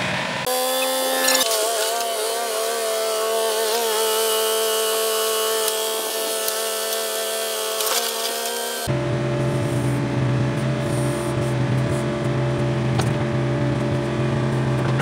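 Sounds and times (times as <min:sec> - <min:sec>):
mini excavator whining under load: 0:00.0 - 0:15.0.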